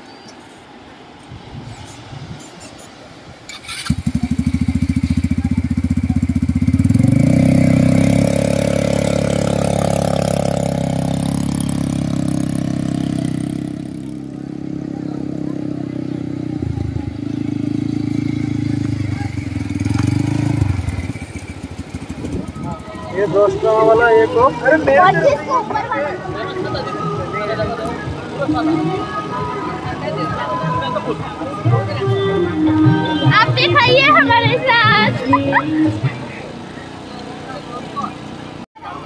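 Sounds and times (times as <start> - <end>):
quad bike engine revving: 3.5 - 25.3, 34.0 - 39.0.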